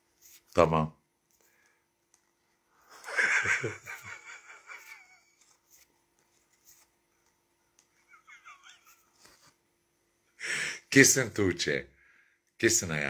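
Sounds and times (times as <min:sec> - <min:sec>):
faint steady hum: 0:00.0 - 0:13.0
woman laughing: 0:02.9 - 0:05.6, 0:08.0 - 0:09.5.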